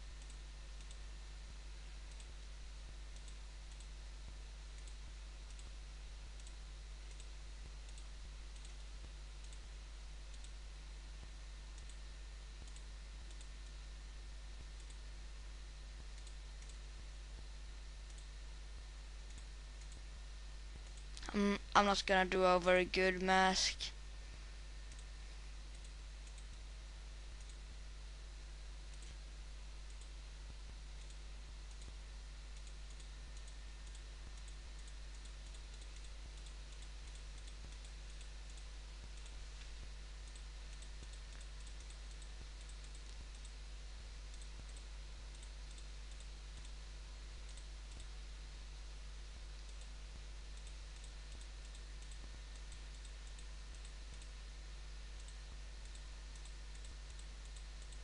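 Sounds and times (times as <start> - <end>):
low electrical hum and hiss: 0.0 - 58.0
computer mouse clicks: 0.1 - 1.0, 2.1 - 2.4, 3.1 - 4.0, 4.7 - 5.8, 6.4 - 9.7, 10.3 - 10.6, 11.2 - 12.0, 12.6 - 13.8, 14.6 - 15.0, 16.1 - 16.9, 18.1 - 18.3, 19.2 - 20.1, 24.9 - 25.1, 25.7 - 26.6, 27.3 - 27.6, 28.9 - 29.2, 29.9 - 30.2, 31.0 - 43.6, 44.3 - 48.2, 49.4 - 54.4, 55.1 - 58.0.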